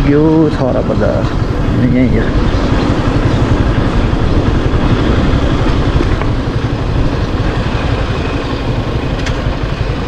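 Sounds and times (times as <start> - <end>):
motorcycle engine rumbling: 0.0 - 10.0
road noise: 0.0 - 10.0.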